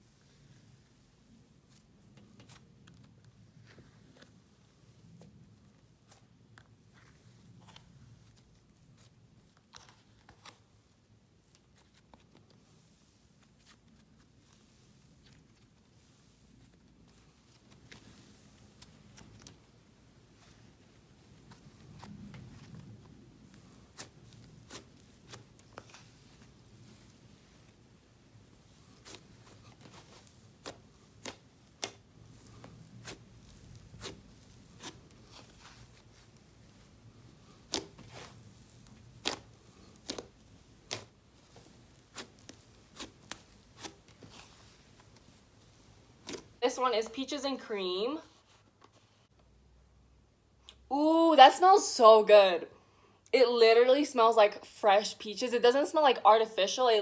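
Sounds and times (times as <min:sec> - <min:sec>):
slime crackling and popping: 0:28.6 - 0:45.4.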